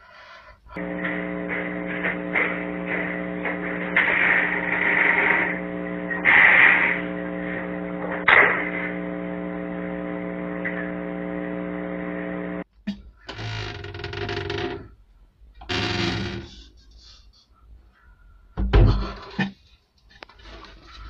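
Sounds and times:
electrical hum: 0:00.6 - 0:16.8
noise bursts: 0:00.7 - 0:14.9.

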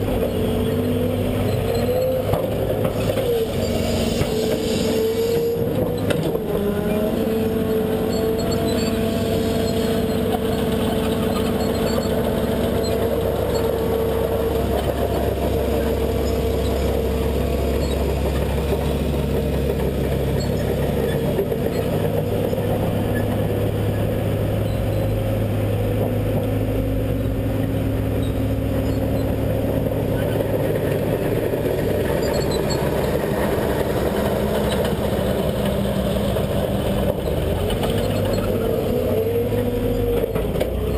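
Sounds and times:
excavator engine under load: 0:00.0 - 0:40.9.

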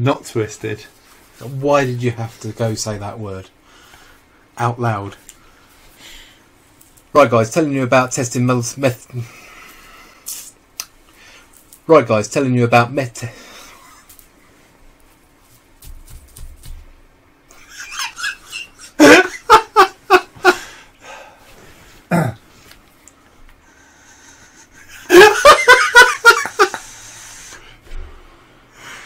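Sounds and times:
men laughing: 0:17.5 - 0:20.8, 0:24.2 - 0:27.1.

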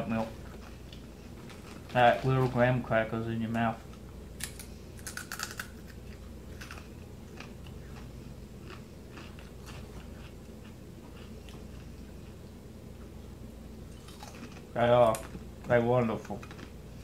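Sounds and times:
cereal crunching as chewed: 0:04.4 - 0:12.4, 0:13.9 - 0:15.4.

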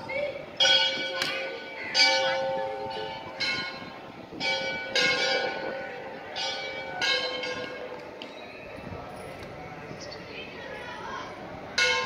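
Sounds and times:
temple bells ringing: 0:00.5 - 0:09.4, 0:11.8 - 0:12.0.

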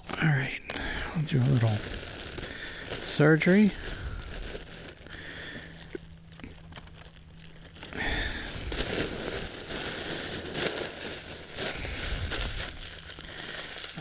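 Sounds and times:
balloon crinkling and crumpling: 0:00.0 - 0:14.0.

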